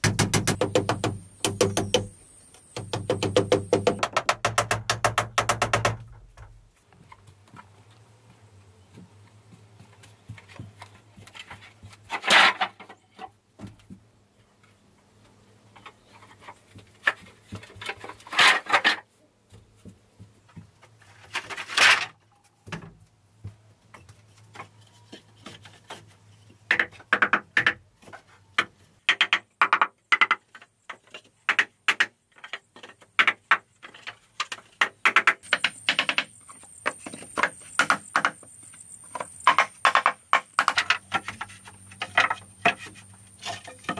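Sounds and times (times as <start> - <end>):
wooden clacks and knocks: 2.8 - 6.6, 26.7 - 43.9
bamboo poles clattering: 10.4 - 14.0, 15.8 - 19.1, 20.8 - 23.1, 23.9 - 43.9.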